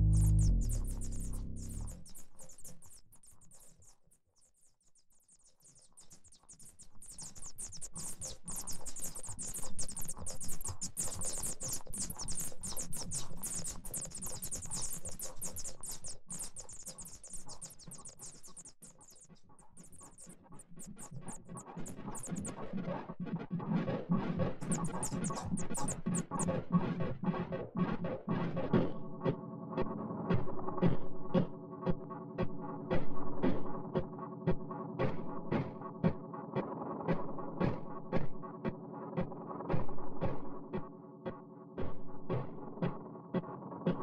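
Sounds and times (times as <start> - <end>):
low pitched drone: 0.0 - 2.0
skittering synth crackles and clicks: 0.0 - 3.7.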